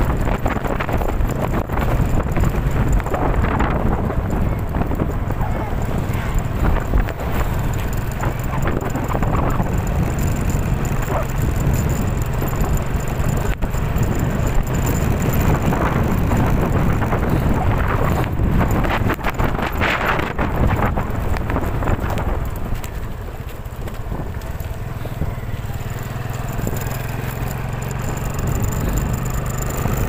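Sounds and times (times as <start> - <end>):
rattles and knocks: 0.0 - 22.9
wind buffeting microphone: 0.0 - 30.0.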